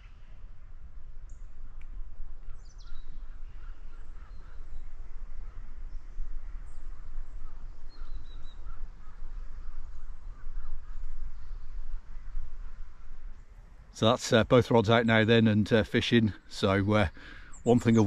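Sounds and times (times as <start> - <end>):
low rumble on microphone: 0.0 - 14.4
birds chirping: 1.1 - 18.0.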